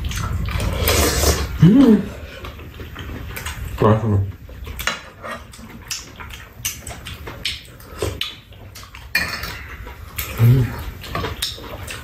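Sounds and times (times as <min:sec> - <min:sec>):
eating mouth noises: 0:00.0 - 0:12.0.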